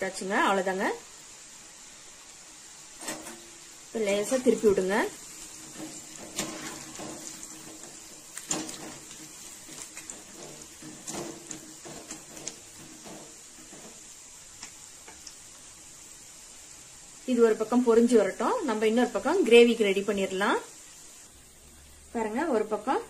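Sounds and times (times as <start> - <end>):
food sizzling in hot oil: 0.0 - 23.0
metal skimmer scraping pan: 3.0 - 3.5, 4.4 - 14.2.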